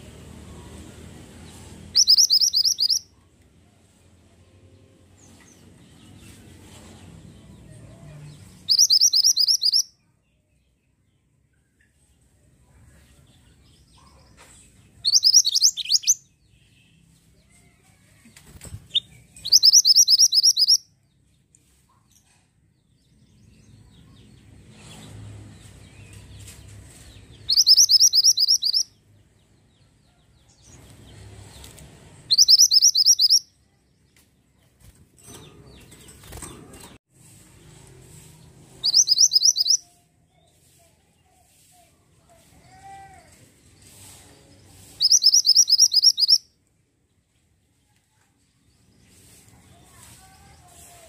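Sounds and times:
bird twittering: 2.0s - 3.0s, 8.7s - 9.9s, 15.1s - 16.2s, 19.4s - 20.8s, 27.5s - 28.9s, 32.3s - 33.4s, 38.8s - 39.8s, 45.0s - 46.4s.

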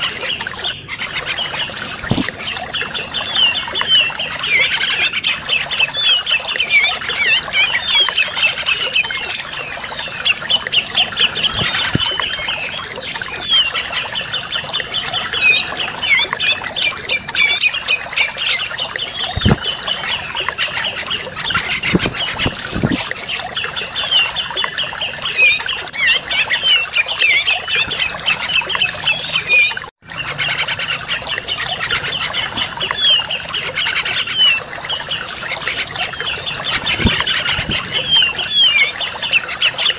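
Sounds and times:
bird chattering and whistling song: 0.0s - 24.5s, 35.2s - 39.9s.

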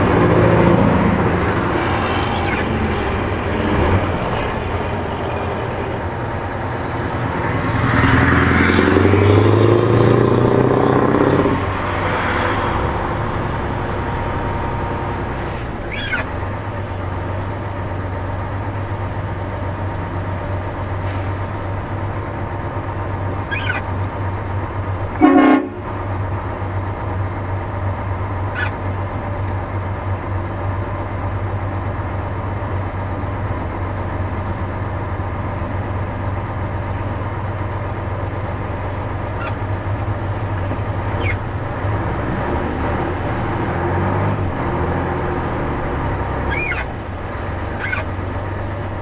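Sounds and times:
diesel engine running: 0.0s - 49.0s
horn blast: 25.2s - 25.9s.

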